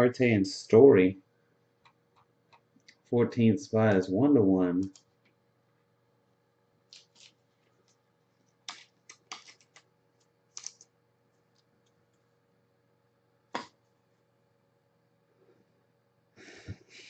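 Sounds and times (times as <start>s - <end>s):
cards rustling in plastic sleeves: 6.9s - 7.9s, 8.6s - 9.9s, 10.5s - 10.9s.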